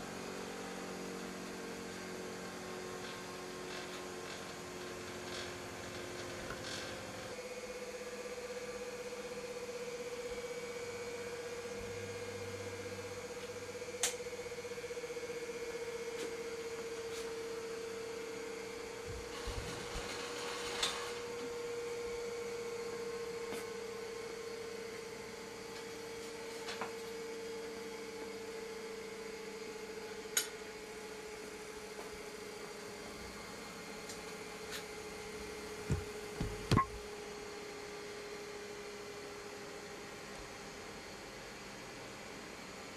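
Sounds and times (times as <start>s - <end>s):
steady hum: 35.4s - 37.1s.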